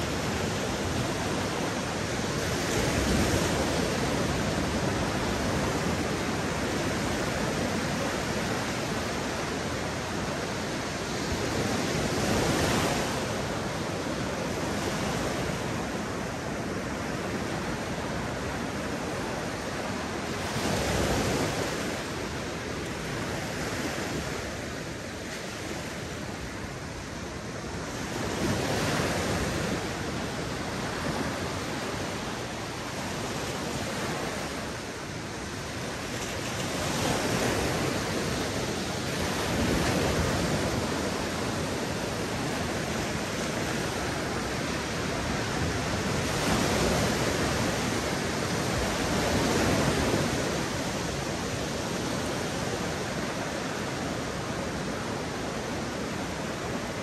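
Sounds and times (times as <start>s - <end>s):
sea waves breaking on beach: 0.0s - 57.0s.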